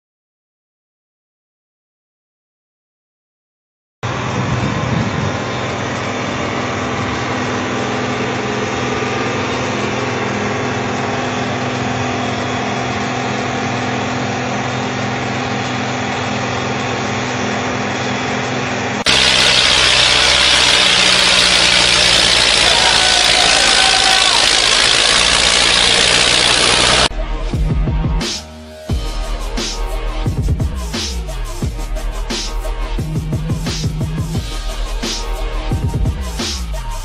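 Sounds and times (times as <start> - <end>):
diesel engine running steadily: 4.0 - 27.1
tractor engine working hard: 4.0 - 27.1.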